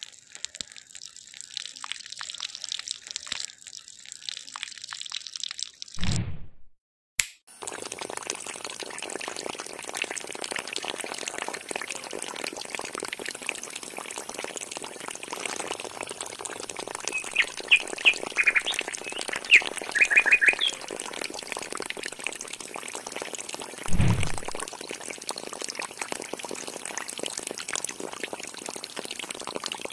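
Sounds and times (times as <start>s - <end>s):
water splashing into soil: 23.9s - 24.7s.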